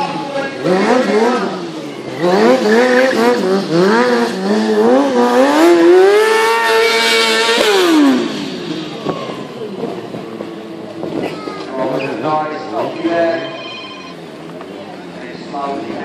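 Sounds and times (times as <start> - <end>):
motorcycle engine revving: 0.0 - 11.2.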